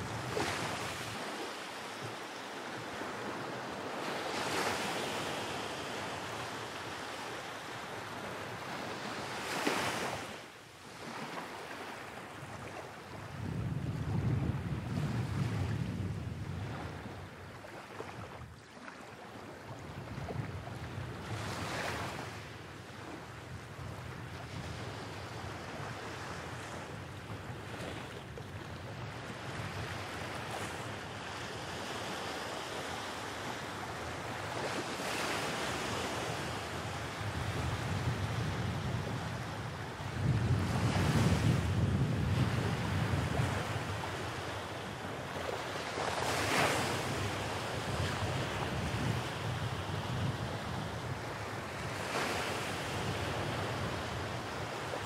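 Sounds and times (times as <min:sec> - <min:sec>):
wind rumble on microphone: 0:00.0 - 0:01.4, 0:12.4 - 0:18.6, 0:19.6 - 0:32.1, 0:33.7 - 0:55.0
waves breaking on beach: 0:00.0 - 0:13.6, 0:29.2 - 0:55.0.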